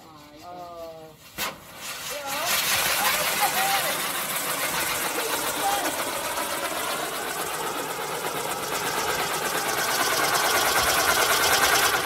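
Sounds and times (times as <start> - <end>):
firework rushing hiss: 0.9 - 6.4
firework crackling: 0.9 - 12.0.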